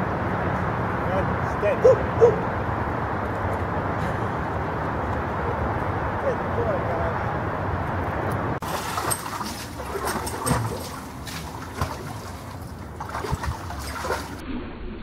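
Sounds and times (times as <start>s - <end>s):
water dripping: 8.6s - 14.4s
water sloshing and splashing: 8.6s - 14.4s.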